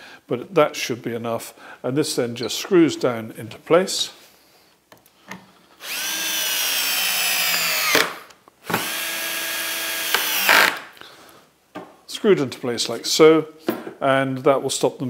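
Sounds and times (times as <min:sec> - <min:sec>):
drill-driver whining: 0:05.8 - 0:10.8.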